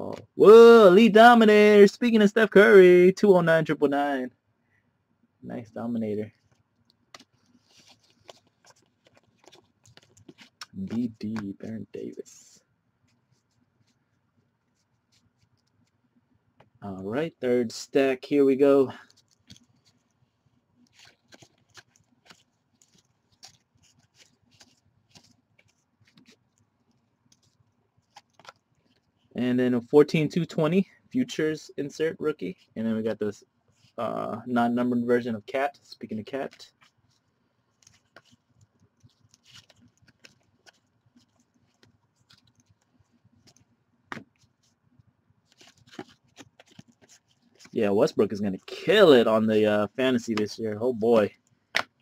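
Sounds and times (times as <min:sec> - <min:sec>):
trading cards sliding and clicking: 0:45.5 - 0:49.2.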